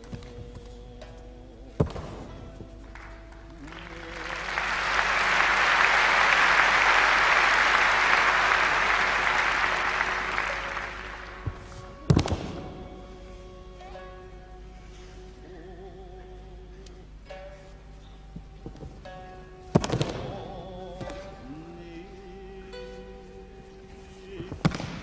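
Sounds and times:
quiet background music: 0.0 - 25.0
audience applauding: 2.8 - 13.6.

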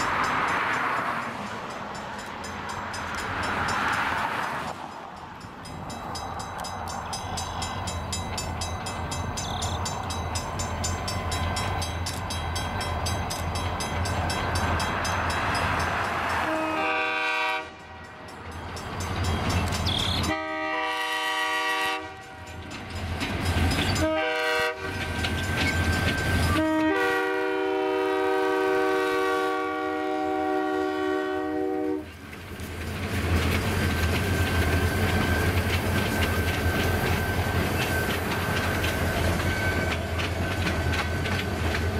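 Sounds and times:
diesel train engines rumbling: 0.0 - 41.9
locomotive air horn blasts: 16.4 - 18.0, 20.3 - 22.5, 24.0 - 25.1, 26.5 - 32.1.

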